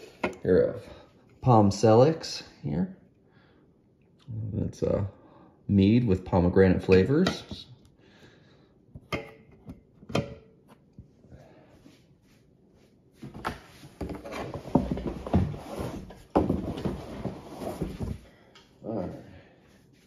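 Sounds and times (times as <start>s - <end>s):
rustling and rubbing of handling: 10.6s - 18.3s, 18.9s - 20.0s.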